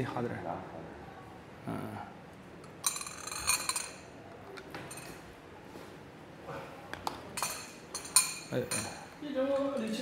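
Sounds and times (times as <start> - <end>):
porcelain tableware clinking: 2.6 - 5.2, 7.1 - 10.0.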